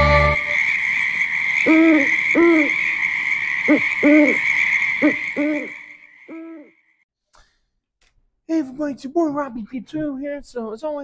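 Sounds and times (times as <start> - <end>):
high-pitched night ambience hiss: 0.0 - 6.3
owl hooting: 0.0 - 6.8.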